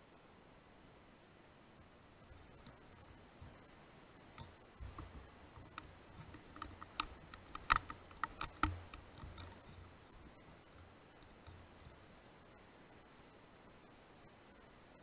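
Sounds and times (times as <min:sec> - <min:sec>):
small clicks and crackles: 0:02.2 - 0:12.2
dull thumps: 0:04.3 - 0:12.1.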